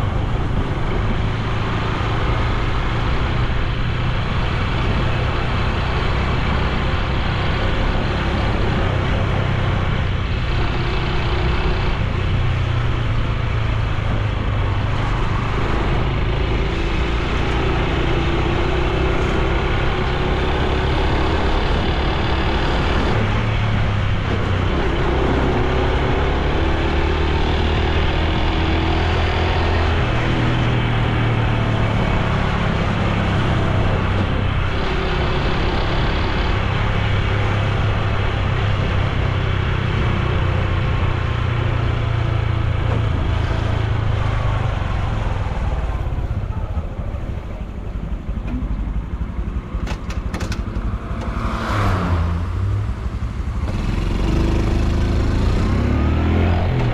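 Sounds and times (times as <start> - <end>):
wind and road noise: 0.0 - 56.9
motorcycle engine running: 29.7 - 55.9.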